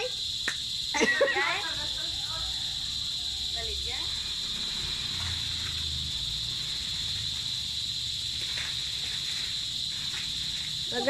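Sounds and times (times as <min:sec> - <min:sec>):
insects chirring: 0:00.0 - 0:11.0
dry leaves rustling: 0:04.6 - 0:11.0.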